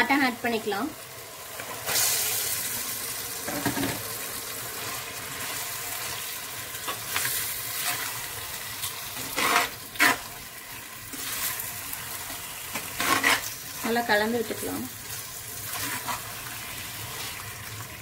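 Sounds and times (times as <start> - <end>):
meat sizzling in hot oil: 0.0 - 18.0
metal ladle scraping pot: 13.0 - 13.5.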